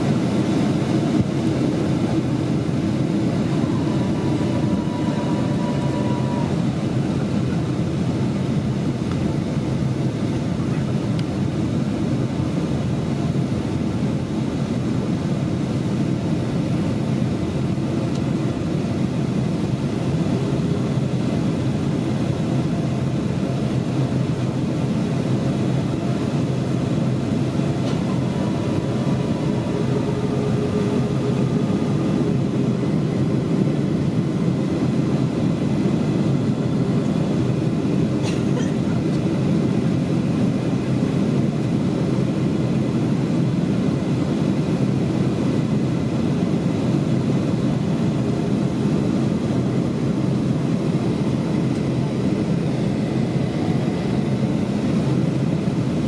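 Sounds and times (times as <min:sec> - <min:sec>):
airplane cabin engine roar: 0:00.0 - 0:56.0
faint tone: 0:03.4 - 0:06.6.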